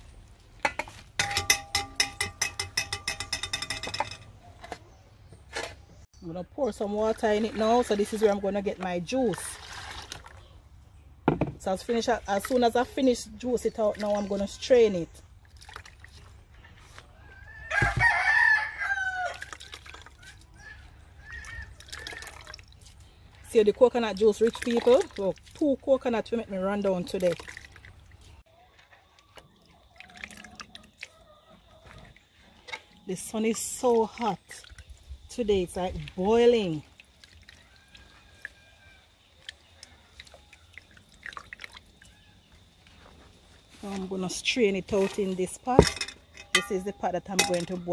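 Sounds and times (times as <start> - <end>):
wet squelches of squeezing coconut: 6.8 - 10.8, 11.8 - 45.8
rooster crowing: 17.2 - 19.5.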